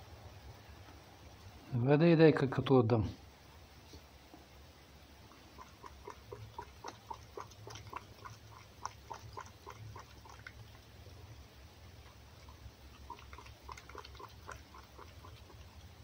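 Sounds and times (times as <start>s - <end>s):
fox lapping and smacking: 5.3s - 16.0s.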